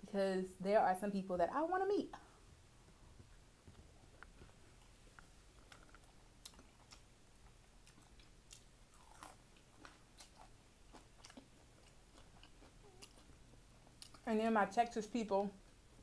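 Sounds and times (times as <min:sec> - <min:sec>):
close-up chewing: 0:03.7 - 0:14.3.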